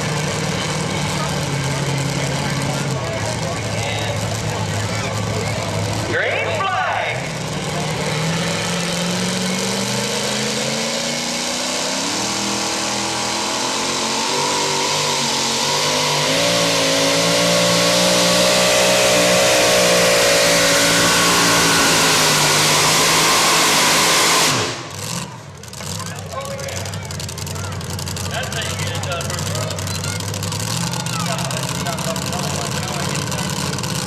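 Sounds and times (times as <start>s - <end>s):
supercharged truck engine revving: 0.0s - 34.0s.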